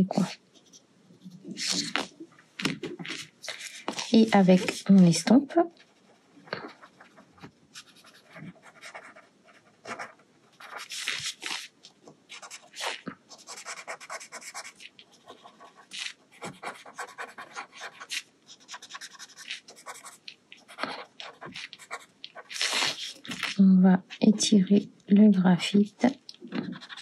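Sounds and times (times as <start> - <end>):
blending stump scratching paper: 12.4 - 23.6, 26.6 - 27.0.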